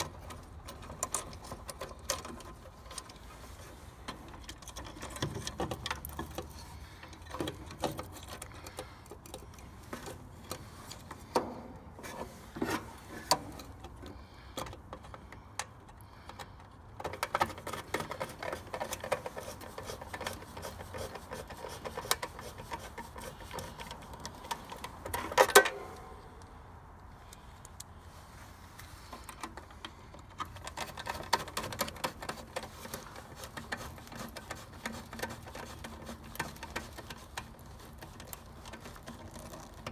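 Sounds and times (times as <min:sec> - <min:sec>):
screwdriver clicking and scraping: 0:00.0 - 0:26.2, 0:29.1 - 0:39.9.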